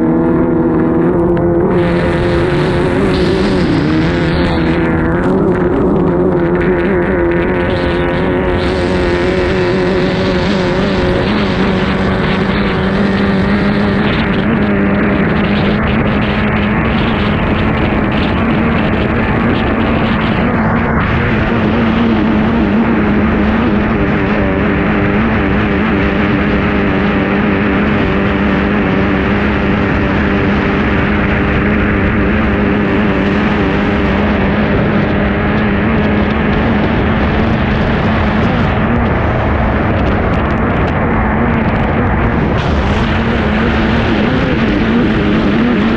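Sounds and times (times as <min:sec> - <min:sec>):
boat engine running flat out: 0:00.0 - 0:45.9
rush of wind and water: 0:00.0 - 0:45.9.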